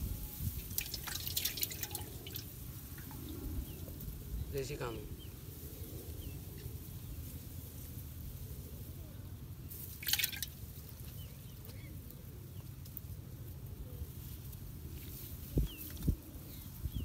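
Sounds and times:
fish splashing into water: 0.6 - 3.1, 9.9 - 10.6.

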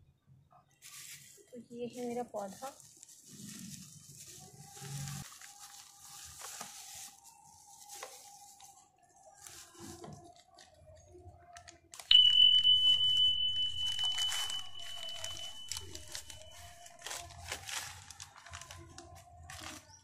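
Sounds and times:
plastic bag crinkling and tearing: 0.8 - 8.7, 13.9 - 20.0
high bell-like chime: 12.1 - 16.7.

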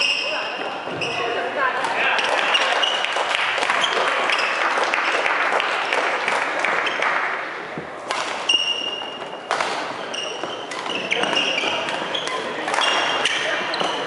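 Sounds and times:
shoes squeaking on wooden court: 0.0 - 1.4, 2.2 - 3.1, 8.1 - 14.0.

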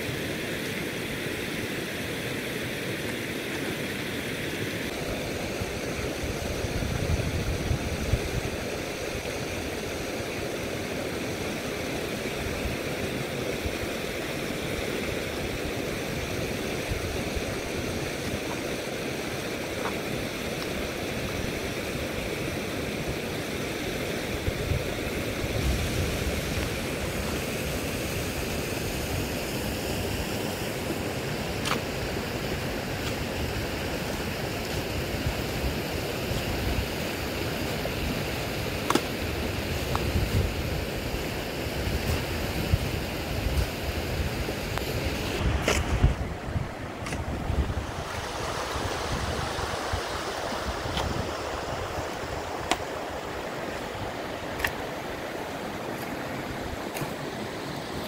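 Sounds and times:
river flowing: 0.0 - 58.0
wind rumble on microphone: 5.4 - 9.9, 24.3 - 29.4, 37.8 - 52.7.

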